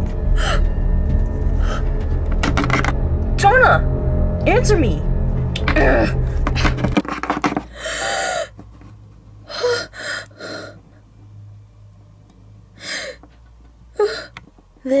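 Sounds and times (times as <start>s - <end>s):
low steady hum: 0.0s - 15.0s
person gasping and breathing: 7.7s - 8.6s.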